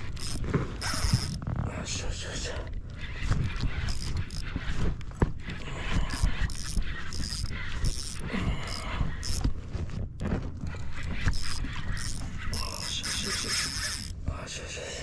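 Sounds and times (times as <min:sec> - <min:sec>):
fishing reel gears whirring: 0:00.0 - 0:01.4, 0:03.0 - 0:09.5, 0:10.9 - 0:14.2.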